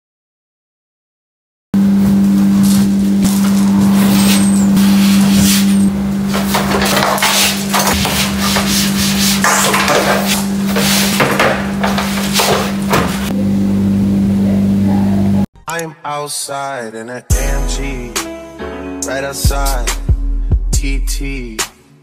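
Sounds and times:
loud low hum: 1.8 - 15.5.

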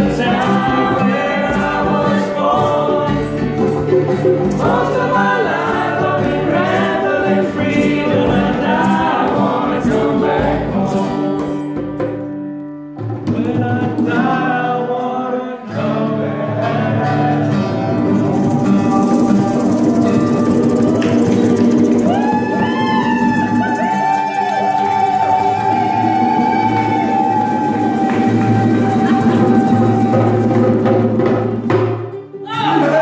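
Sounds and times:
djembe hand drums: 0.0 - 10.8, 17.5 - 32.2
voices singing together: 0.0 - 11.6, 13.3 - 31.3, 32.5 - 33.0
strummed acoustic guitars: 0.0 - 33.0.

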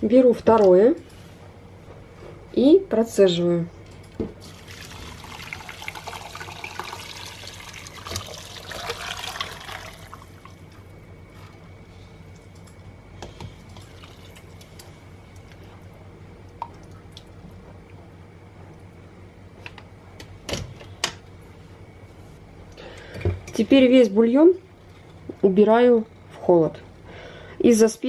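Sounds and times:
liquid pouring into pot: 4.4 - 10.9
liquid trickling and dripping: 16.5 - 17.4.

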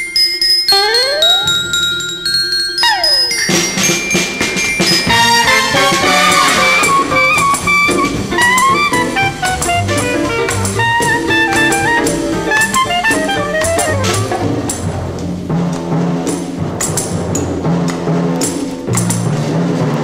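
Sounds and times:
brass melody: 0.7 - 1.9, 2.8 - 15.0
drum kit: 2.8 - 20.0.

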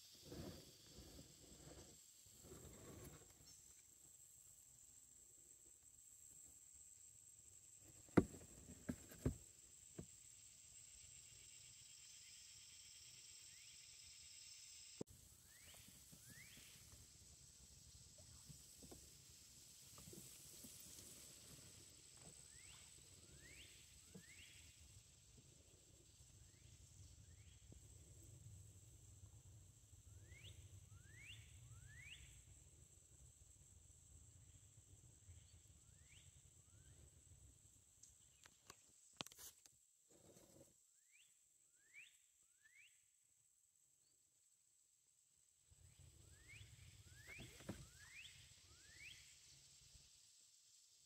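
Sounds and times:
high insect drone: 0.0 - 39.6, 43.7 - 51.0
bird whistled calls: 46.4 - 49.3.

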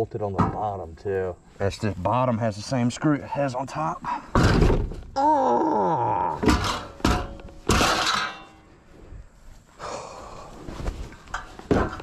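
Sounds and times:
man groaning: 5.2 - 6.5
heavy knocks on metal frame: 6.4 - 8.4.

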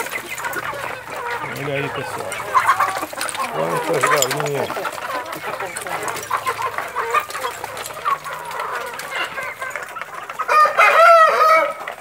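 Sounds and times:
chickens clucking: 0.0 - 12.0
rooster crowing: 10.5 - 11.8.

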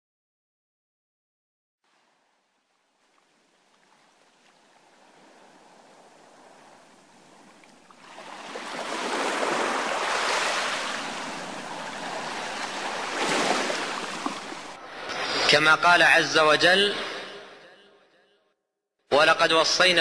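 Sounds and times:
ocean waves washing in: 1.9 - 17.5.

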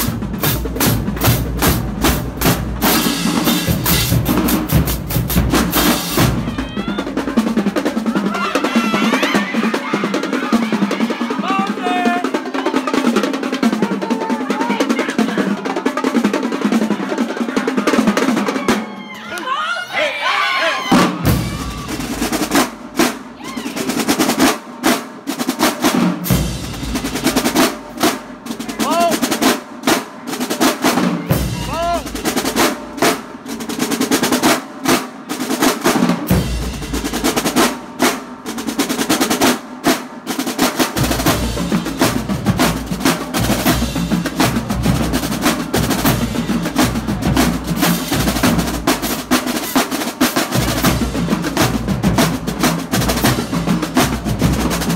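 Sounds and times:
cymbals: 0.0 - 7.7, 40.7 - 54.9
snare drums rolling: 0.0 - 19.1, 20.8 - 54.9.

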